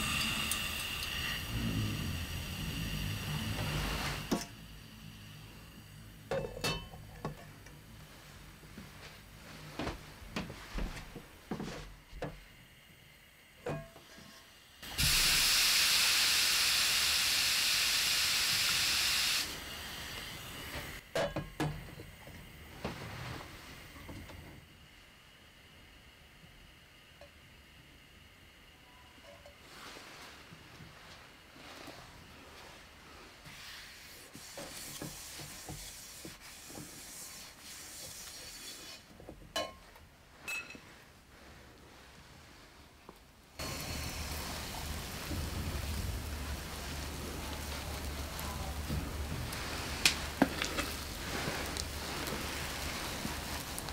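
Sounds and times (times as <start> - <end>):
hot pan hissing on wet cloth: 0.0 - 6.2, 14.1 - 21.0, 33.4 - 39.0, 43.6 - 53.9
soft hiss: 40.2 - 53.9.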